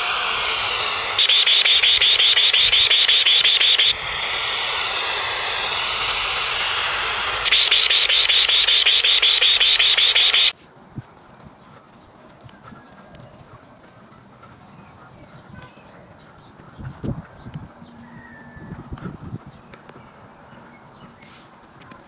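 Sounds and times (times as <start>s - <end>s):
rapid pulsing high beep: 0.0s - 10.5s
static hiss: 0.0s - 10.5s.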